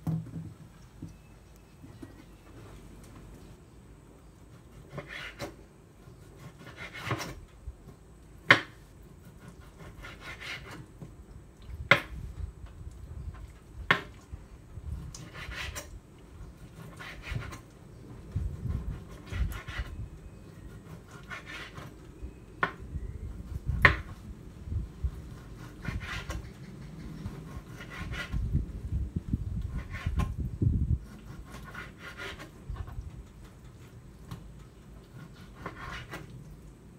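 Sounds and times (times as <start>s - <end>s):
knife rasping through meat: 6.1s - 7.4s, 9.2s - 10.8s, 15.0s - 15.9s, 16.6s - 17.6s, 18.6s - 20.0s, 25.1s - 26.4s, 27.2s - 28.4s, 31.0s - 33.0s, 35.1s - 36.3s.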